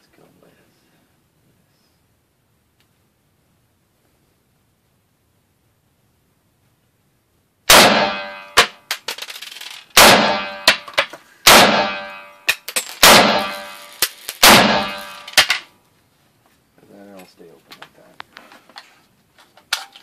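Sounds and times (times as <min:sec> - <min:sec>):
rifle shots echoing: 0:07.7 - 0:08.8, 0:10.0 - 0:15.6
sharp cracks: 0:07.7 - 0:15.7.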